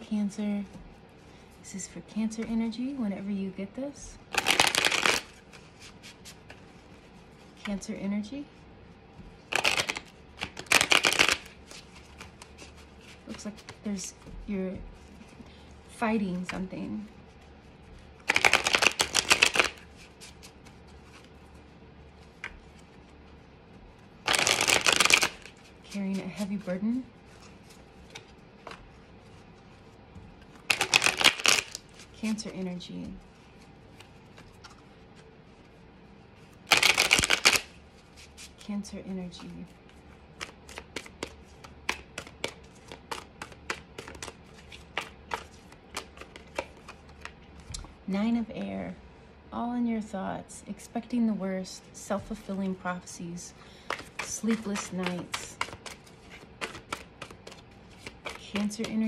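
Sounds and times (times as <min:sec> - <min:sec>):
cards riffle-shuffled: 0:04.3 - 0:07.9, 0:09.5 - 0:14.2, 0:18.2 - 0:21.3, 0:24.2 - 0:29.0, 0:30.5 - 0:32.7, 0:36.7 - 0:38.6, 0:39.4 - 0:47.9, 0:53.8 - 0:59.0.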